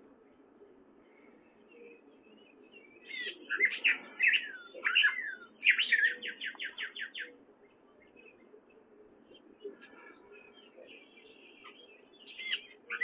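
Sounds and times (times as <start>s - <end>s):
catbird singing: 1.6s - 7.4s.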